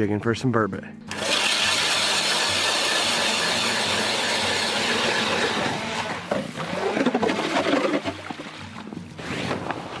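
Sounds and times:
ice auger drilling into ice: 1.1s - 8.2s.

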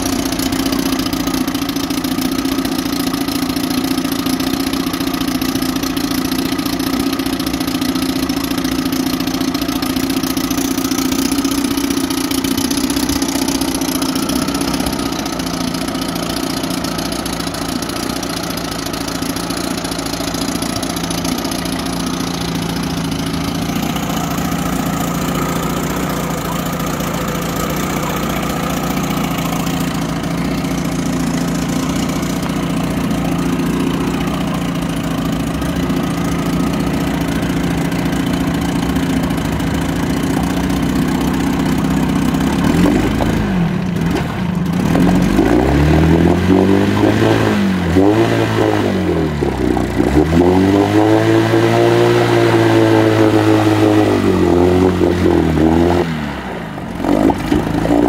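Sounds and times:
outboard motor running: 0.0s - 58.0s
water churning: 5.4s - 47.2s.

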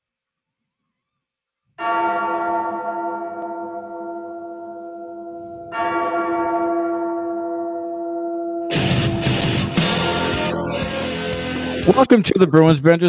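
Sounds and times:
bell ringing: 8.7s - 11.4s.

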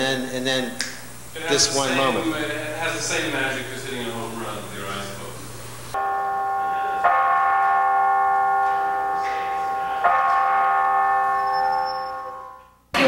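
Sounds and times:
bell chimes ringing: 6.0s - 12.8s.

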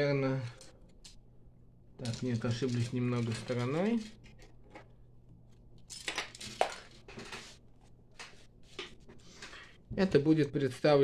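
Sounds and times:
plastic parts clicking and rattling: 2.0s - 5.0s, 5.8s - 7.4s.

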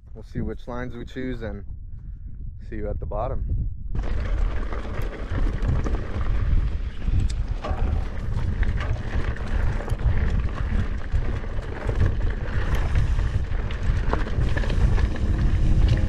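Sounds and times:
wind buffeting microphone: 0.0s - 16.0s
bike clicks and rattles: 3.9s - 16.0s
tyres on dirt: 4.0s - 16.0s.

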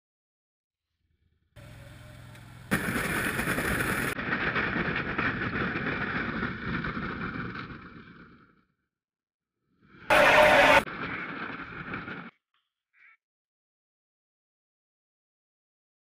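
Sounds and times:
outboard motor running: 1.6s - 4.1s
ice crackling and scraping hull: 2.7s - 8.5s, 10.1s - 12.3s.

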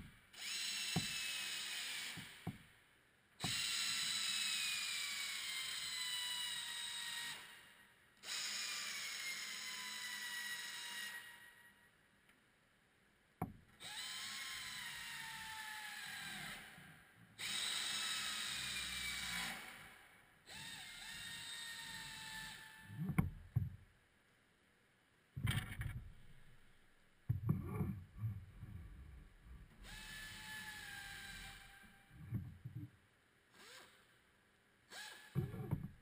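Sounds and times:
pneumatic air ratchet whining: 0.4s - 2.4s, 3.4s - 7.6s, 8.2s - 11.5s, 17.4s - 23.2s, 29.7s - 32.3s, 33.6s - 34.0s, 34.9s - 35.8s.

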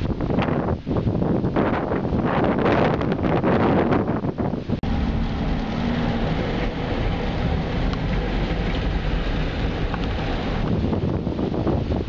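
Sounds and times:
water washing over windshield: 4.5s - 12.0s
car driving through floodwater: 4.8s - 12.0s.

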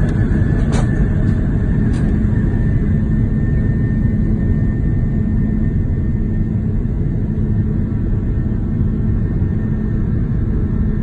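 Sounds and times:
faint steady whine: 0.0s - 11.0s
jet engines low rumble: 0.0s - 11.0s.

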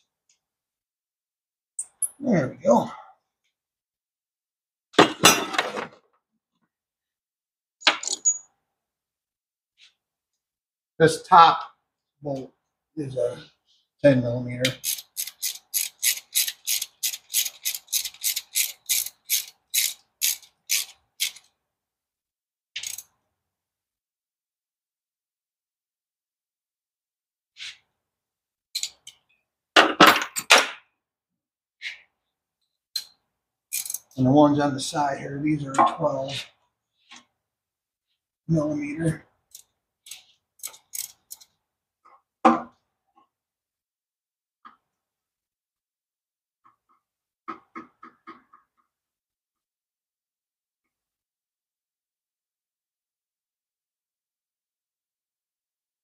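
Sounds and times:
hand tools clicking and clanking: 33.7s - 34.2s.

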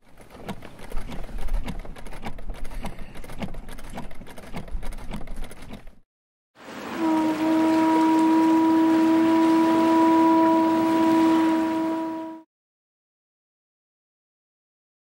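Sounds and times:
sewing machine clattering: 0.0s - 6.0s
ship's horn blast: 6.6s - 12.5s.

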